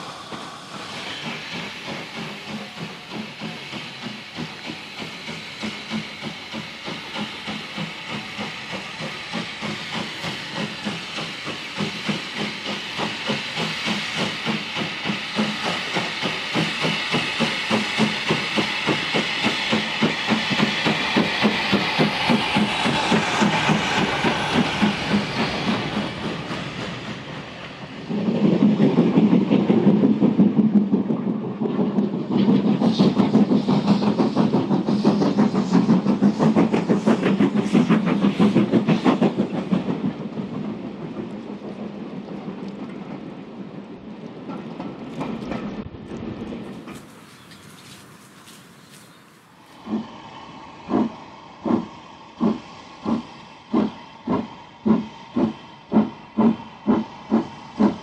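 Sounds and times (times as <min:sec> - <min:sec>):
hiss of steam: 0:00.0 - 0:42.3, 0:46.6 - 0:58.0
steam locomotive beat: 0:00.0 - 0:45.8, 0:46.5 - 0:58.0.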